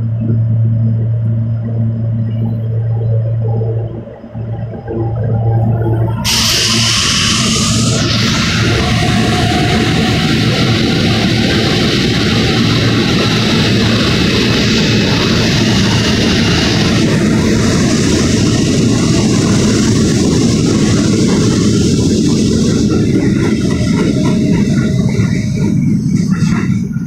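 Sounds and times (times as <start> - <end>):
subway train rumbling: 0.0 - 27.0.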